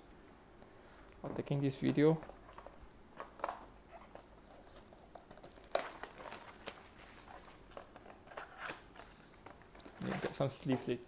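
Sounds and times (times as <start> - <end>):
plastic wrap crinkling and tearing: 3.2 - 10.7.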